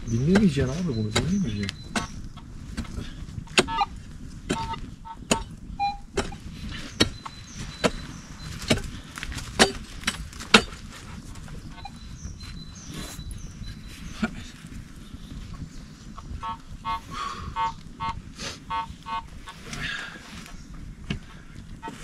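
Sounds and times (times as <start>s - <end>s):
hand tool striking soil: 0.2s - 2.1s, 4.5s - 5.5s, 6.2s - 7.2s, 9.6s - 10.8s.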